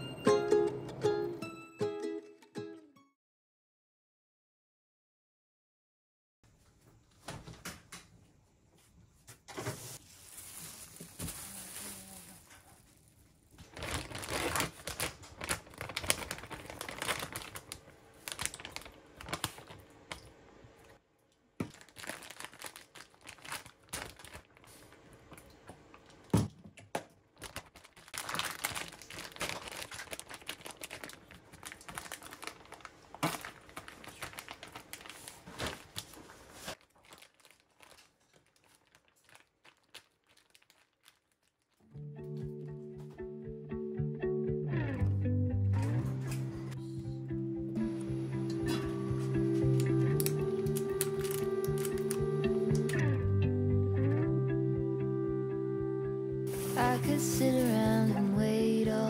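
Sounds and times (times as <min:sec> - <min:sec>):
plastic bags crinkling: 0:09.8 - 0:20.4, 0:21.6 - 0:26.3, 0:27.3 - 0:41.9, 0:49.3 - 0:53.0, 0:56.5 - 0:58.2.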